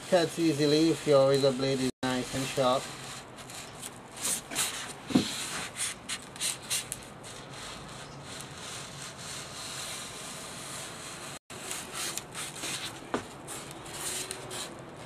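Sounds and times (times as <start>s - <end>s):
blade scratching through styrofoam: 0.0s - 15.0s.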